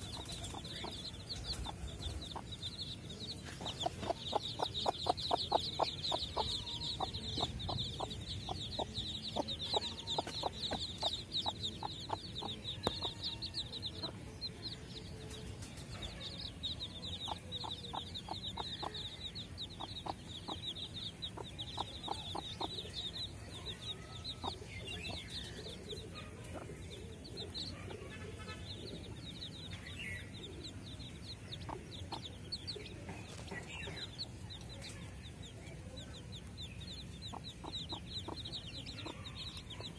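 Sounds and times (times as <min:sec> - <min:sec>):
hen clucking: 0:00.0 - 0:15.4, 0:16.8 - 0:35.6, 0:36.2 - 0:39.9
chicks peeping: 0:00.0 - 0:39.9.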